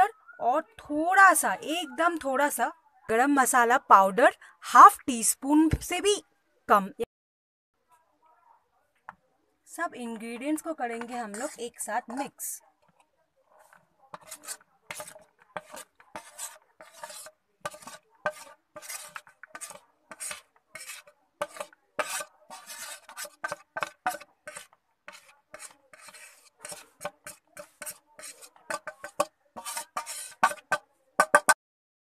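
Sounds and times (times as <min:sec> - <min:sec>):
metal spoon scraping a plate: 0:11.0 - 0:11.8, 0:13.6 - 0:31.6.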